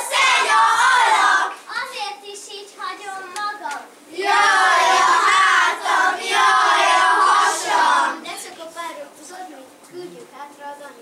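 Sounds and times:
children singing in unison: 0:00.0 - 0:01.6, 0:04.1 - 0:08.2.

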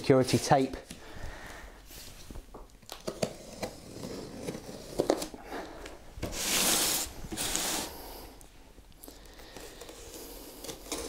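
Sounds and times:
box scraping on tiled floor: 0:06.2 - 0:08.0.

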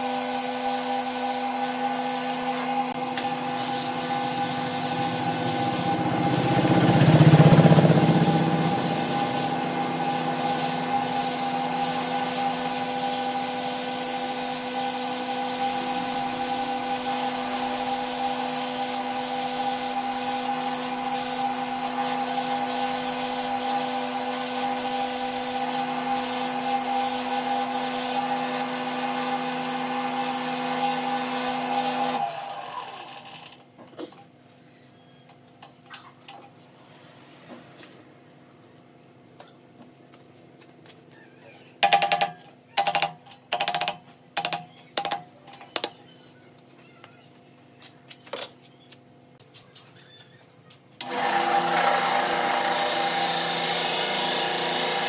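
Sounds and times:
sandpaper rubbing spinning wood: 0:00.0 - 0:32.2
lathe motor whine: 0:01.4 - 0:13.6, 0:25.6 - 0:33.4.

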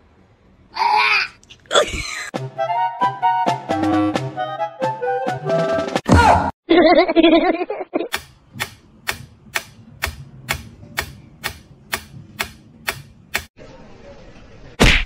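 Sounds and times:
metronome ticking: 0:08.1 - 0:13.5.

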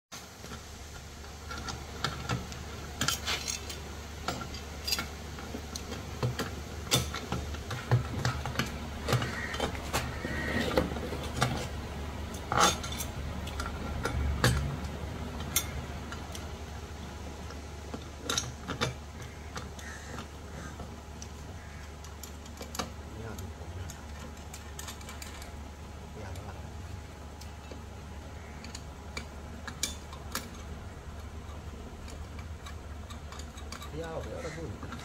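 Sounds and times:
low steady hum: 0:00.2 - 0:35.0
hand tools clinking on metal: 0:03.0 - 0:05.1.

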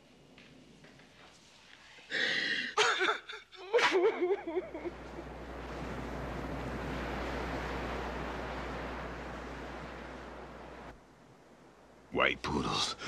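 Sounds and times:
ocean surf breaking: 0:04.5 - 0:13.0.

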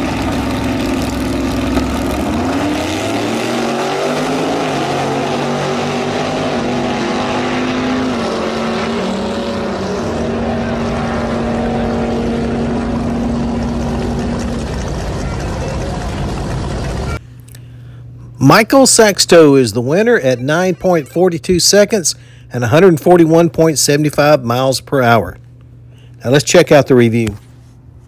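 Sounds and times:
racing car engines at full throttle: 0:00.0 - 0:17.2.

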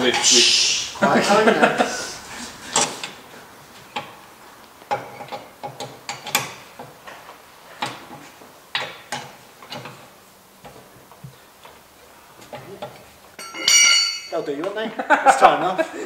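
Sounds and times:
wheel brace clicking on wheel nuts: 0:03.8 - 0:14.3.

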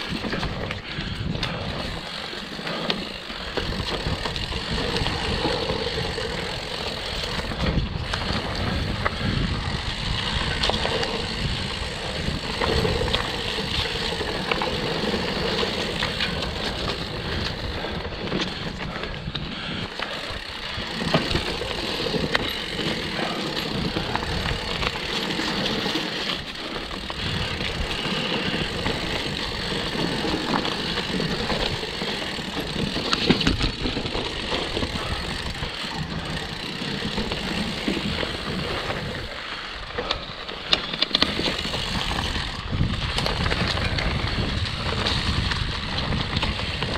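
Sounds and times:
bike rattling over bumps: 0:00.0 - 0:46.9
tyres rumbling on dirt: 0:00.0 - 0:46.9.

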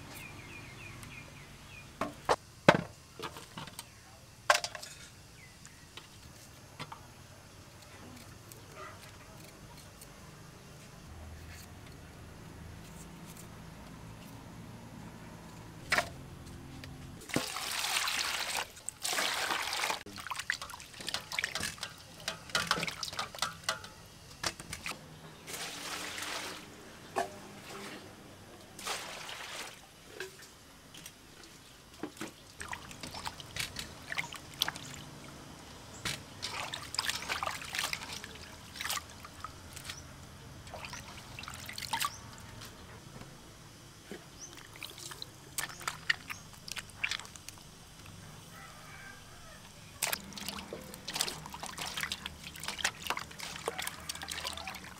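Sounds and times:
water poured and splashing: 0:17.2 - 0:23.8, 0:25.5 - 0:26.7, 0:28.8 - 0:29.8, 0:32.2 - 0:35.2, 0:36.1 - 0:40.0, 0:40.6 - 0:42.2, 0:44.5 - 0:47.7, 0:50.0 - 0:54.9.

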